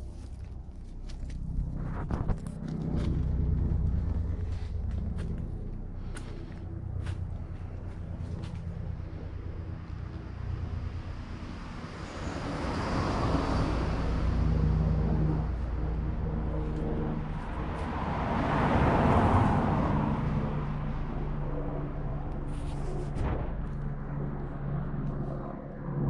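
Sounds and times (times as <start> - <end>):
vehicle engine running: 0.0 - 12.6, 13.2 - 26.0.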